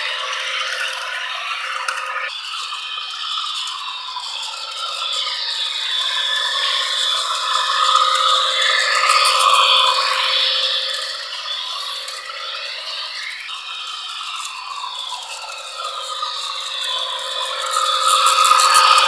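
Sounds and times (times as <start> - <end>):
motor whir: 0.0 - 19.0
model train wheels rattling: 14.1 - 19.0.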